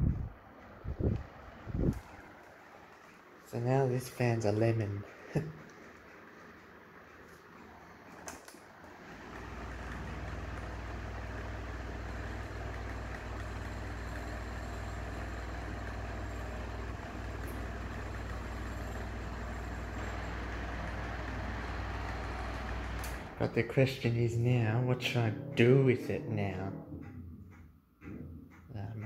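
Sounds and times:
air rushing from fan blades: 0.0 - 3.7, 7.7 - 23.5
fan motor humming: 0.0 - 29.0.

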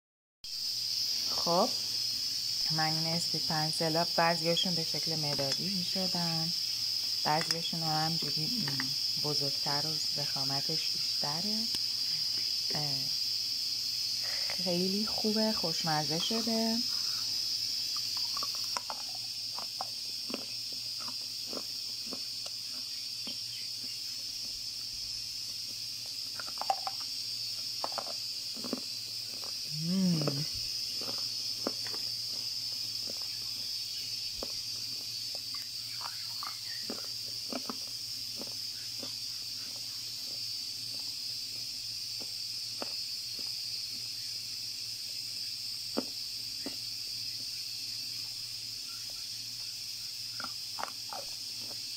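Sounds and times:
steady high hiss: 0.5 - 37.3
clay being chewed: 17.9 - 24.6, 25.4 - 33.7, 34.3 - 43.6, 50.3 - 51.9.

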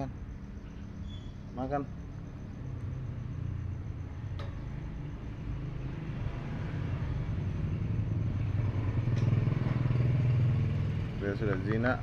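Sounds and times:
motor engine droning: 2.8 - 12.0.

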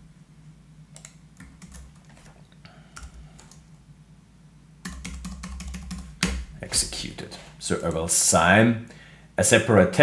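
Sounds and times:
typing on computer keyboard: 1.0 - 2.4, 4.8 - 6.4.

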